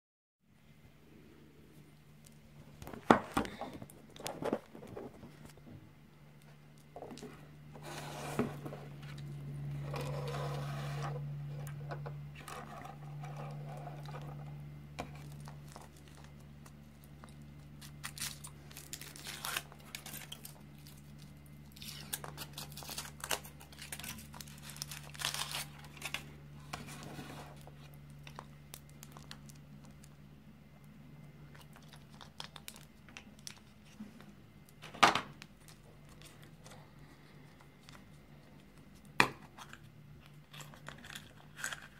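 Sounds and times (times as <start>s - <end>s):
low steady hum: 0.4s - 41.9s
foil wrapper crinkling and tearing: 15.0s - 30.2s, 31.5s - 34.0s, 37.5s - 41.9s.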